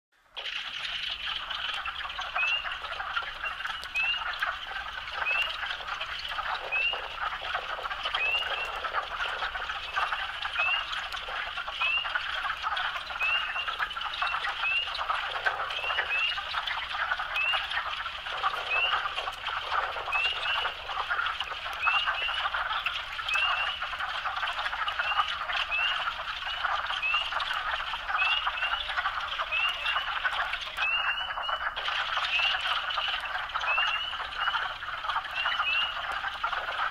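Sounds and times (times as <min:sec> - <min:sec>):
frogs clucking chorus: 0:00.3 - 0:36.9.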